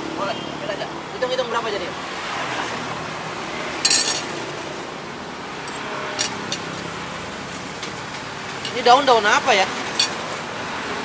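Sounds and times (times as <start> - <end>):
street noise: 0.0 - 11.0
utensils clattering on dishes: 3.8 - 4.4, 5.6 - 9.0, 9.8 - 10.4.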